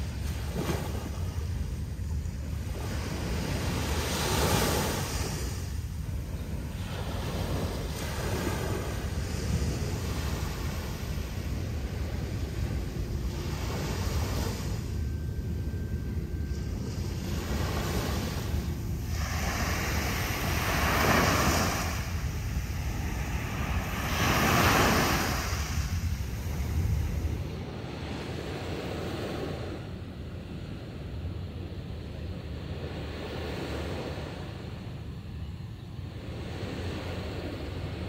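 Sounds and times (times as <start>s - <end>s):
wind rumbling on microphone: 0.0s - 38.0s
sea waves washing onto beach: 16.5s - 27.4s.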